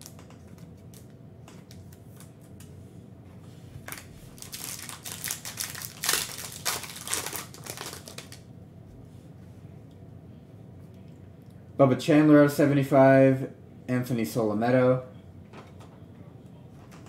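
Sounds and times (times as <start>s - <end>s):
foil wrapper crinkling: 3.8s - 8.4s.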